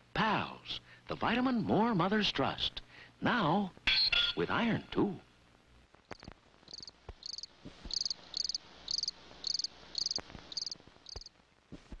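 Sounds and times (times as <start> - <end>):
faint clicks and pops: 5.9 - 8.0, 10.0 - 12.0
cricket chirping: 6.1 - 11.3.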